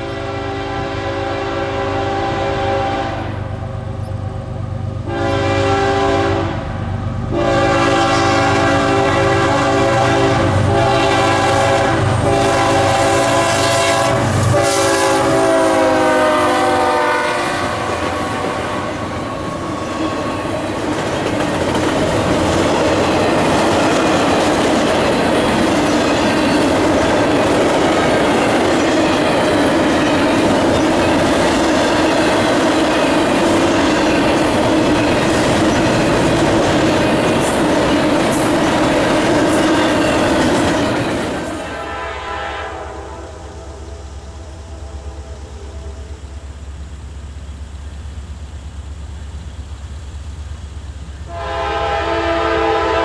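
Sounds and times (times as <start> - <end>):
locomotive air horn blasts: 0.0 - 3.6, 4.9 - 19.4, 41.6 - 46.4, 51.3 - 53.0
train wheels clacking on rails: 7.9 - 41.8.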